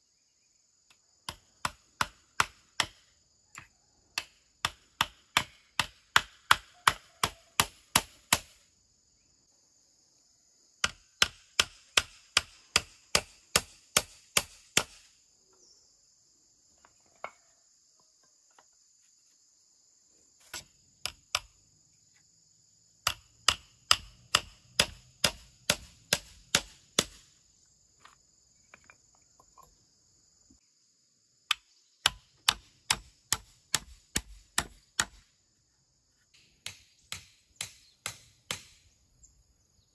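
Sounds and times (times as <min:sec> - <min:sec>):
hammer nailing wood: 0:04.2 - 0:08.6, 0:10.8 - 0:15.0, 0:23.0 - 0:27.2, 0:32.0 - 0:35.2, 0:36.6 - 0:38.8.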